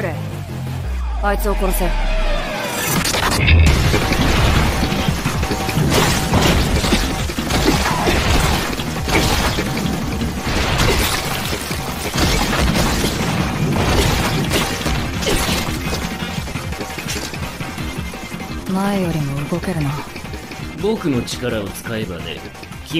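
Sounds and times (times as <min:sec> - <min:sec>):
music: 0:00.0 - 0:22.9
crashes and impacts: 0:01.8 - 0:17.9.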